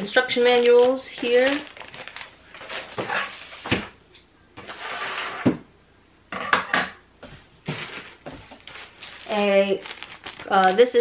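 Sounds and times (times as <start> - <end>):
plastic wrapping rustling: 0.0 - 3.9, 7.2 - 11.0
items knocking against cardboard: 7.2 - 8.8.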